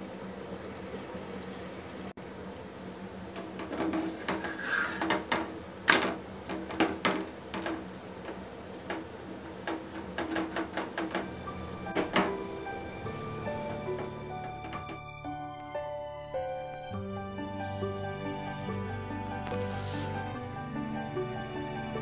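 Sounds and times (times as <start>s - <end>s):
flatbread sizzling in a pan: 2.3s - 14.3s
spatula scraping a pan: 3.6s - 7.7s.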